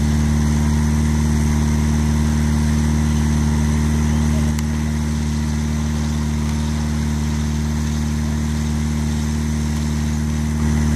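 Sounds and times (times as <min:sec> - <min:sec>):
motor droning hum: 0:00.0 - 0:10.9.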